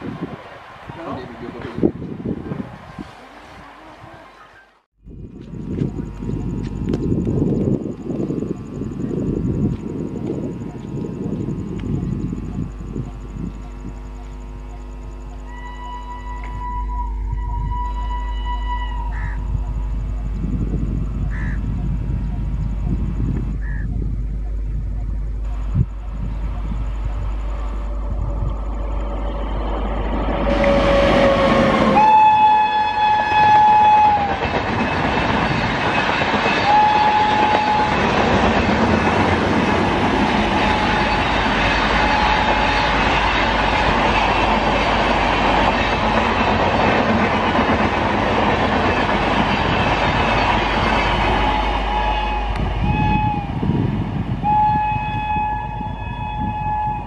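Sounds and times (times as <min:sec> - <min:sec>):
train rushing and clattering on rails: 0:00.0 - 0:04.1, 0:05.4 - 0:13.4, 0:25.5 - 0:57.0
locomotive horn blasts: 0:15.3 - 0:19.8, 0:30.4 - 0:34.5, 0:36.5 - 0:38.4, 0:40.1 - 0:44.0, 0:51.1 - 0:53.8, 0:54.4 - 0:57.0
train horn toots: 0:15.3 - 0:20.0, 0:30.2 - 0:35.0, 0:36.4 - 0:44.8, 0:50.7 - 0:57.0.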